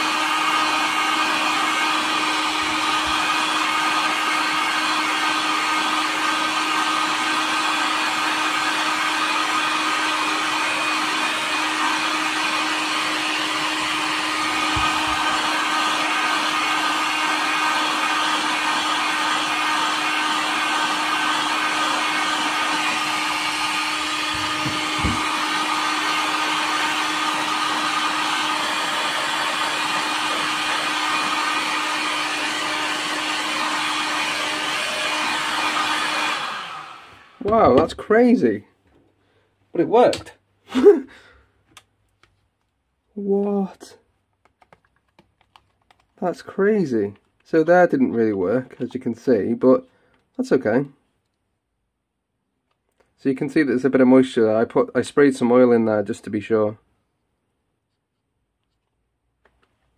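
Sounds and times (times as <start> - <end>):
heat gun blowing: 0.0 - 37.9.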